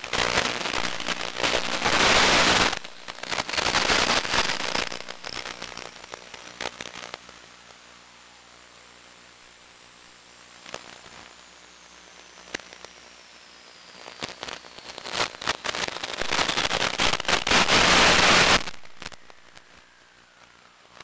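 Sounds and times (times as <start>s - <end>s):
radio static hiss and crackles: 0.0s - 21.0s
faint falling whistle: 13.0s - 14.8s, 19.0s - 20.7s.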